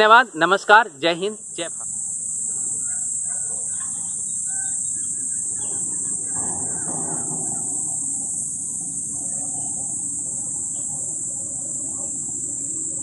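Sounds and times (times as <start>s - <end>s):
insects shrilling: 0.0s - 13.0s
low rumbling noise: 1.5s - 13.0s.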